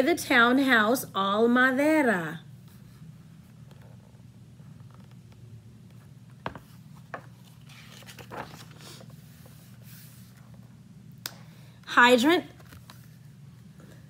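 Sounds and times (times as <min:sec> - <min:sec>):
low room hum: 0:00.0 - 0:14.0
book pages turning: 0:04.7 - 0:10.6, 0:12.6 - 0:13.2.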